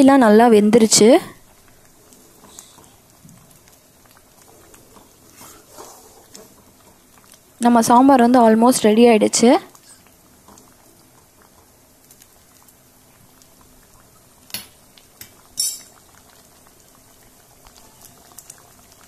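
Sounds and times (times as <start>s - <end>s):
thick stew bubbling in a pan: 0.0s - 19.0s
metal ladle clinking on pan: 15.6s - 15.9s.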